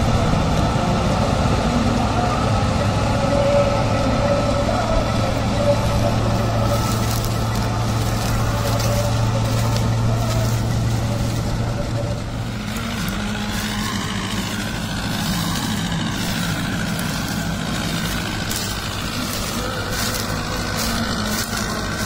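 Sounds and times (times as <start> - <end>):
tractor diesel engine: 0.0 - 22.0
wavering whine: 0.0 - 22.0
chopper rotor whirring: 4.5 - 22.0.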